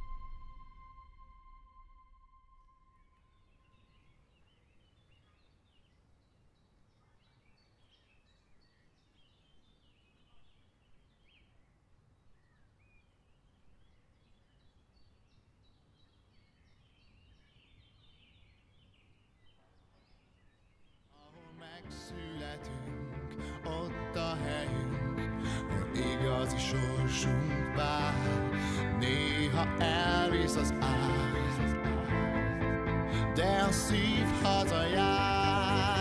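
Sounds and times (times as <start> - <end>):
birds chirping and trilling: 3.0 - 22.6.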